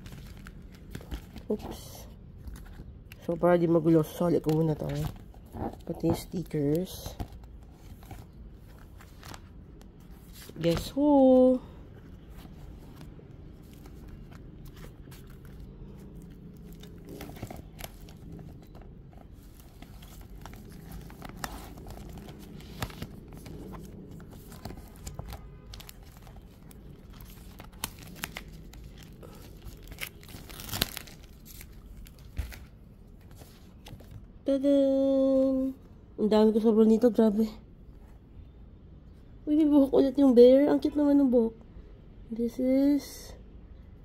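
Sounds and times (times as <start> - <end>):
plastic wrapping crinkling: 13.0 - 33.9.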